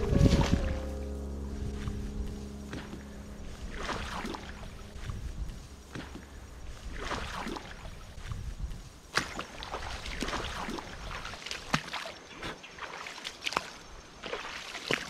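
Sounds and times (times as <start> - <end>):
low rumble: 0.0 - 9.1
footsteps through wet grass: 0.0 - 15.0
soggy ground squelching: 0.0 - 15.0.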